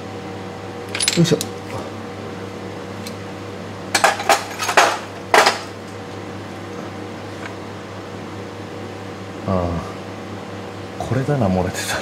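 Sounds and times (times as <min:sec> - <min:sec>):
steady low hum: 0:00.0 - 0:12.0
metal parts clattering: 0:00.9 - 0:01.4, 0:04.0 - 0:05.6
hand tools clinking on metal: 0:00.9 - 0:01.5.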